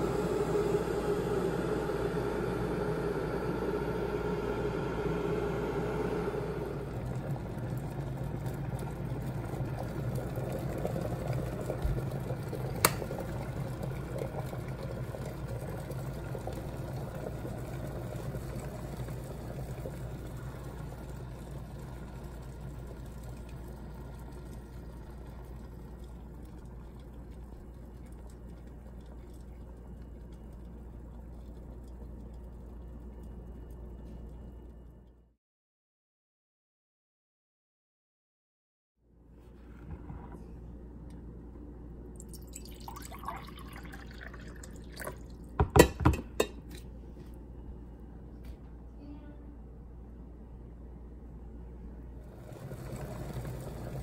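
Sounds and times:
kettle water boiling: 0.0s - 35.2s, 42.1s - 47.6s, 51.9s - 54.0s
kettle switch click: 12.8s - 13.0s.

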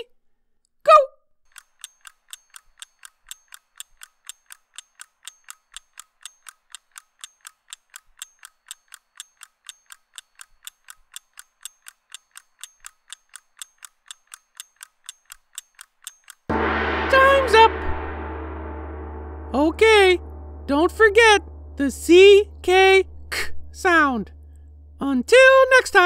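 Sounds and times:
clock ticking: 1.5s - 16.5s.

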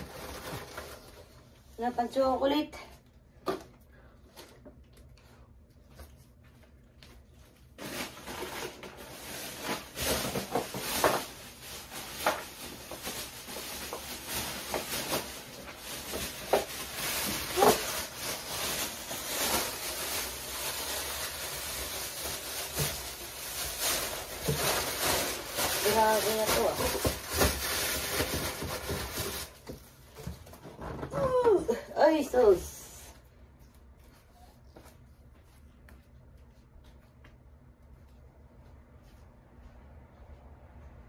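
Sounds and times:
rustling of plastic bags: 0.0s - 2.9s, 6.1s - 34.6s.

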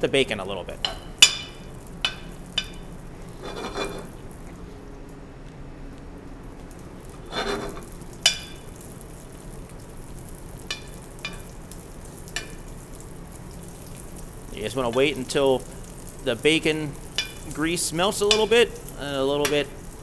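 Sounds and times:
bacon sizzling in a pan: 0.6s - 4.5s, 6.4s - 20.0s
utensil clinking against pan: 17.1s - 17.6s, 18.2s - 18.8s.

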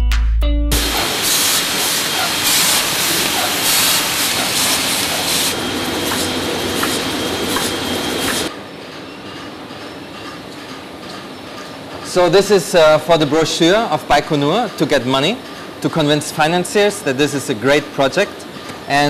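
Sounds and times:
machine noise: 0.7s - 16.6s
printing press mechanical clatter: 0.8s - 8.5s.

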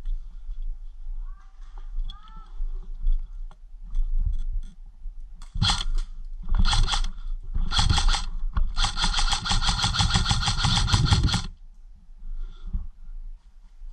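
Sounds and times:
airsoft gun firing bursts: 5.6s - 5.9s, 6.6s - 7.1s, 7.7s - 11.5s.

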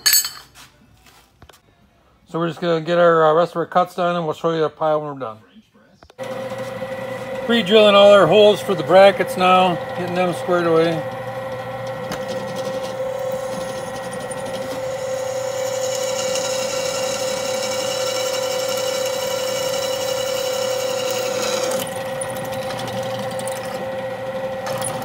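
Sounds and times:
drill bit cutting steel: 6.2s - 25.0s
drill press motor humming: 6.2s - 25.0s.

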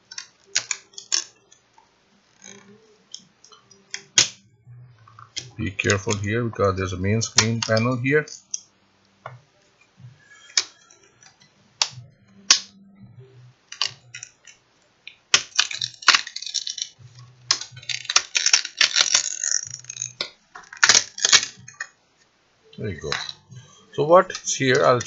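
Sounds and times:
plastic clips snapping free: 0.1s - 1.4s, 7.3s - 8.6s, 10.5s - 12.7s, 13.7s - 14.6s, 15.3s - 21.9s.

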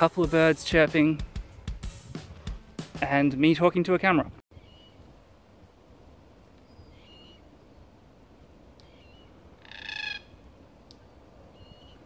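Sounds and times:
small birds chirping: 4.5s - 5.1s, 6.6s - 8.0s, 8.7s - 12.0s
wind hiss: 4.5s - 12.0s
cockatoo harsh call: 8.8s - 10.4s.

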